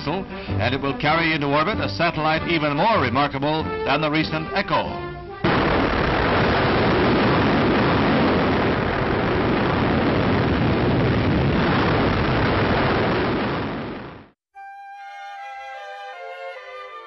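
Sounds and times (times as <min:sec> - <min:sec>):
rocket engine roar: 0:05.4 - 0:14.3.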